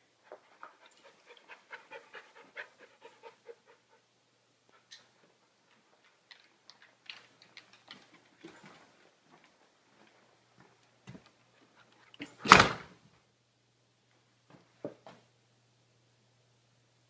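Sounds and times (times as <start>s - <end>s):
puppy panting: 0.3s - 4.1s.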